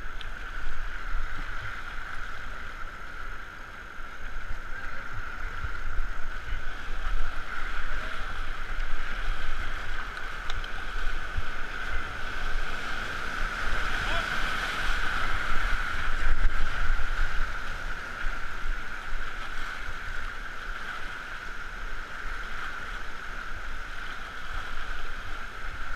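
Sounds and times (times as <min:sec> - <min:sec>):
rushing whitewater rapids: 0:00.0 - 0:25.9.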